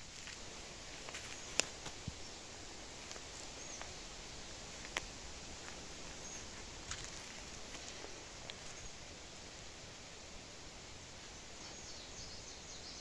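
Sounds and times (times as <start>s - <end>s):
footsteps crunching through leaves: 0.0s - 8.9s
twig snaps: 4.8s - 5.1s
faint bird chirps: 11.2s - 13.0s.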